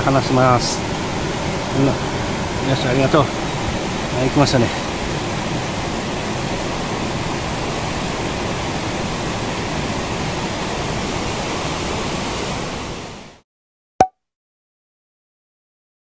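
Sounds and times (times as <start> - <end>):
stream flowing over rocks: 0.0 - 13.0.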